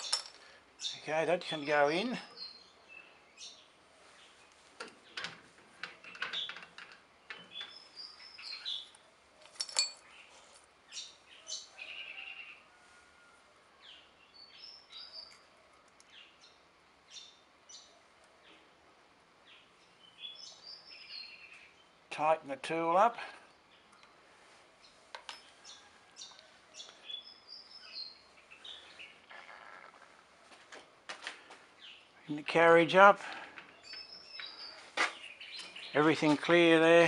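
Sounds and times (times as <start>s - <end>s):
birds chirping: 0.0s - 12.8s, 13.8s - 18.8s, 19.4s - 37.0s
light metal clinks: 9.4s - 10.2s.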